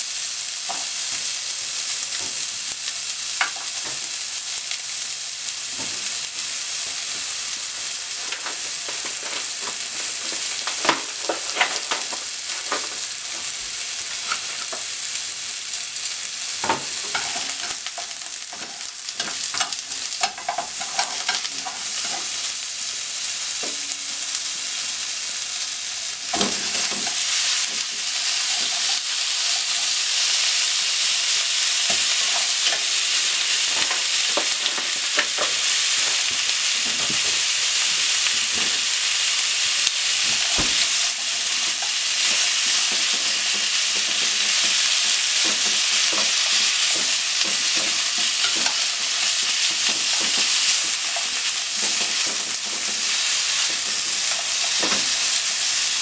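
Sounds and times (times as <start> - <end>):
meat sizzling in frying pan: 0.0 - 56.0
chopsticks scraping pan: 8.2 - 13.5, 16.9 - 22.4, 31.9 - 36.2, 40.3 - 55.2.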